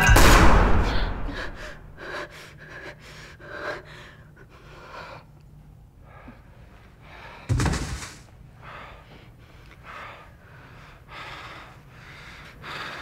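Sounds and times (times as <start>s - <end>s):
loud bang: 0.0s - 1.9s
person breathing hard: 0.8s - 7.6s, 8.5s - 13.0s.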